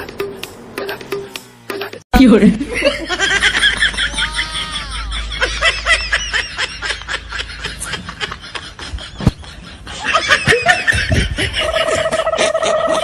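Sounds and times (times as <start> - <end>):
high-pitched laughter: 2.7 - 13.0.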